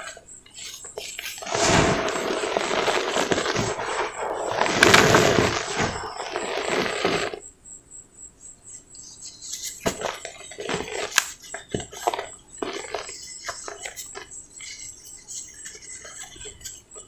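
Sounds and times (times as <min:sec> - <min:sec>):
cement lump crunching: 0:01.4 - 0:07.4, 0:09.8 - 0:14.3
dry powder pouring into basin: 0:01.4 - 0:07.4.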